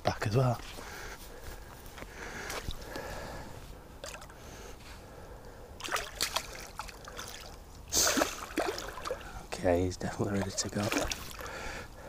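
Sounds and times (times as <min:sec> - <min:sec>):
water splashing and sloshing: 0:02.4 - 0:03.1, 0:04.0 - 0:04.4, 0:05.8 - 0:11.7.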